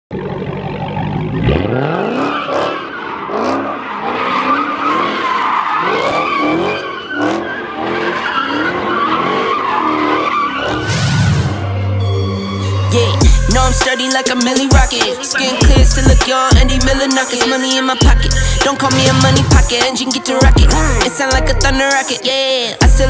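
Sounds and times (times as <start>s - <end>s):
car engine revving hard: 0.8s - 5.2s, 5.8s - 10.8s, 18.2s - 21.8s
tyres squealing: 1.8s - 10.8s.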